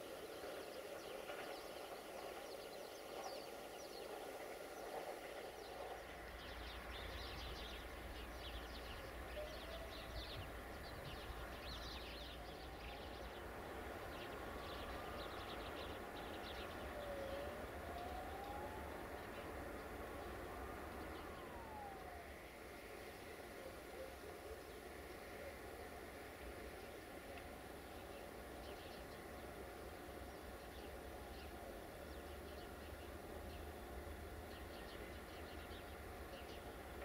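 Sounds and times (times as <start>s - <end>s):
small birds chirping: 0.3s - 22.4s.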